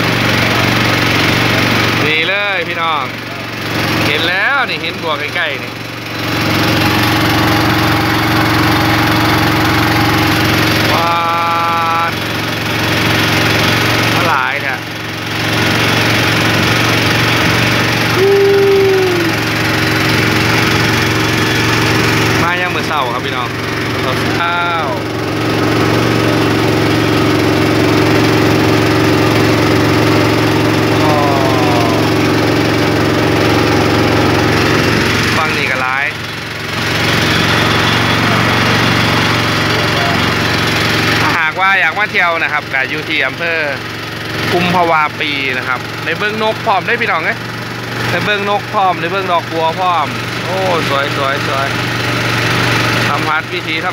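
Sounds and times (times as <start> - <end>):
boat engine humming: 0.0 - 53.9
steady held tone: 0.2 - 14.9, 15.7 - 41.6
falling cry: 31.0 - 32.2.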